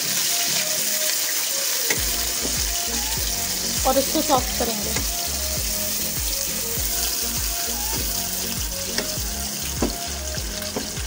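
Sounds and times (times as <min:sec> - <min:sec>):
onions sizzling in oil: 0:00.0 - 0:11.0
wooden spoon knocks: 0:09.8 - 0:10.0.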